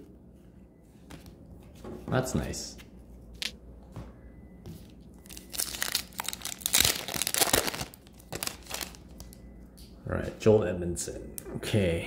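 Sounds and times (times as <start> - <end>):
wrapper crinkling and tearing: 5.2 - 9.3.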